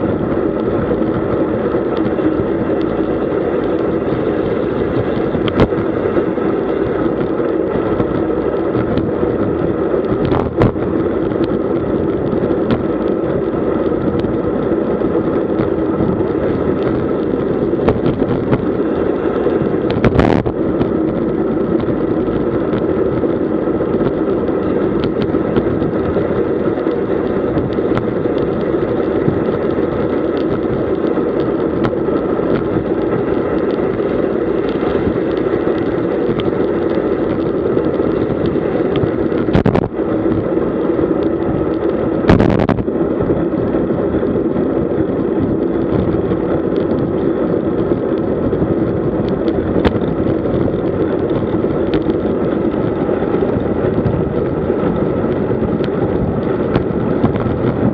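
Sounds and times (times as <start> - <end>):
bike tyres humming on tarmac: 0.0 - 57.9
wind over microphone: 0.0 - 57.9.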